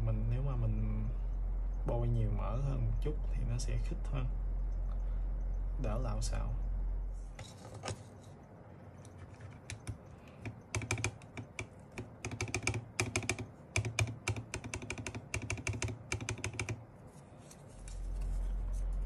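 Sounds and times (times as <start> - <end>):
mechanical keyboard typing: 9.1 - 16.8.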